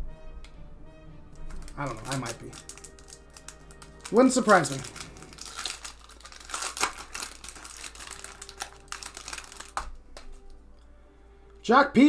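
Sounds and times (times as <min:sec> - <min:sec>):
foil wrapper crinkling and tearing: 0:01.4 - 0:10.6.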